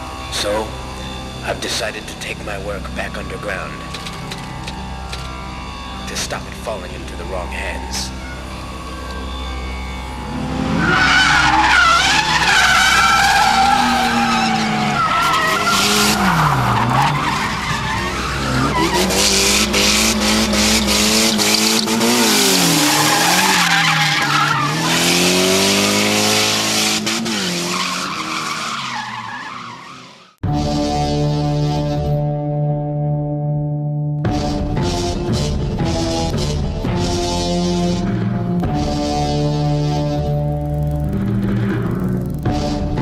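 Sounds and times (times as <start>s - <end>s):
car engine revving hard: 4.0s - 29.4s
tyres squealing: 10.8s - 30.2s.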